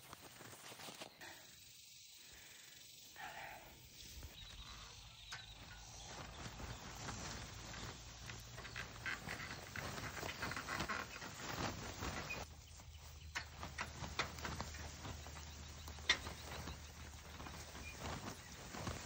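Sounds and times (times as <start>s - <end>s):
grass rustling and swishing: 4.0s - 19.0s.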